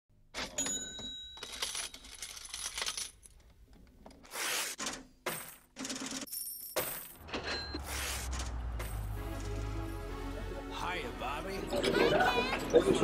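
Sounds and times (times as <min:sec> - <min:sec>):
coins dropping and clinking: 0:00.4 - 0:03.4, 0:04.8 - 0:09.6.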